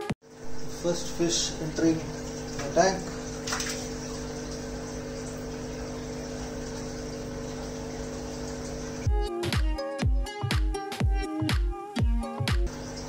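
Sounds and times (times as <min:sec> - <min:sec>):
air pump humming: 0:00.3 - 0:09.2, 0:12.7 - 0:13.0
music with strong beat: 0:09.1 - 0:12.7.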